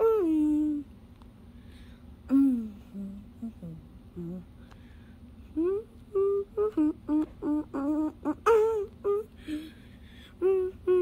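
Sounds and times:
person humming a tune: 0.0s - 0.9s, 2.3s - 4.6s, 5.4s - 11.0s
breath: 1.5s - 2.1s, 4.6s - 5.2s, 9.4s - 10.4s.

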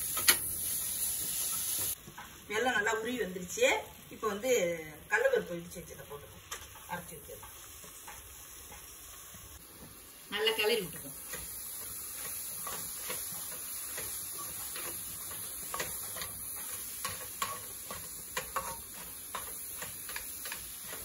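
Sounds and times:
metal spatula scraping a pan: 11.2s - 21.0s
spatula clicking against pan: 11.3s - 21.0s.

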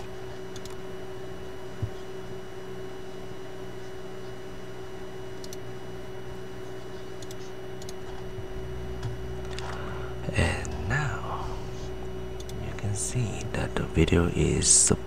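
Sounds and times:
background hum and hiss: 0.0s - 15.0s
computer mouse clicks: 0.5s - 0.8s, 5.4s - 5.6s, 7.2s - 8.2s, 12.4s - 12.6s.

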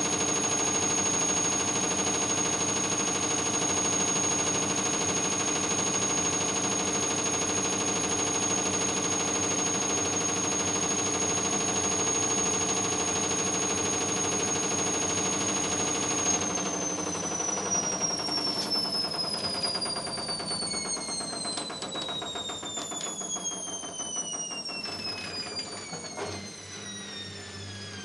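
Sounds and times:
washing machine spinning: 0.0s - 28.0s.

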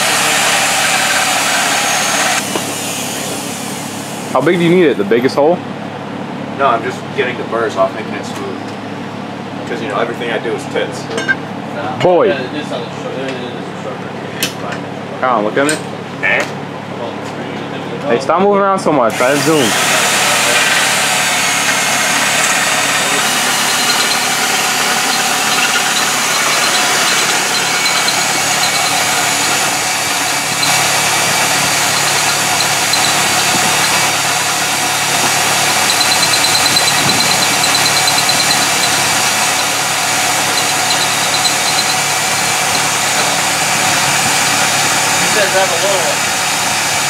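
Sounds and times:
drill boring into metal: 0.0s - 3.7s, 19.1s - 46.3s
thin high whine: 19.2s - 44.1s.

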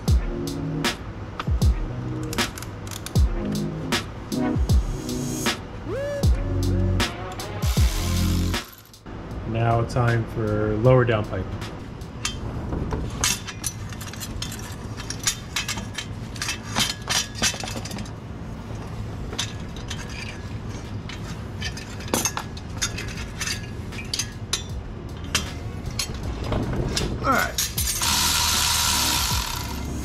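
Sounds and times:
exhaust pipe clinking against metal: 19.3s - 29.8s.

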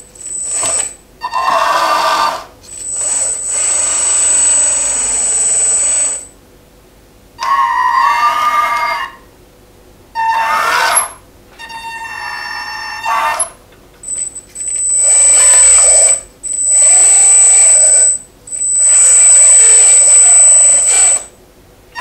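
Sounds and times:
toy loader motors whining: 0.0s - 6.3s, 10.2s - 21.3s
held tones: 2.7s - 6.4s, 14.0s - 21.3s.

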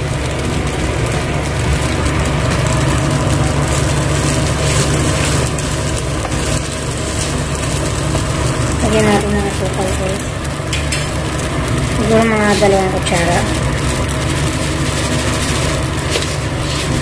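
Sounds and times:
frying sizzle: 0.0s - 17.0s
steady low hum: 0.0s - 17.0s
wooden spoon scraping a pan: 14.6s - 17.0s.

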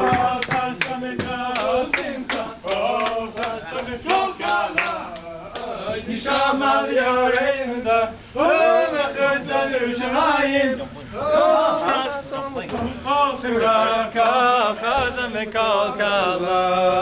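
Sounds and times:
sharp hand claps: 0.0s - 5.7s
men singing together: 0.0s - 17.0s.

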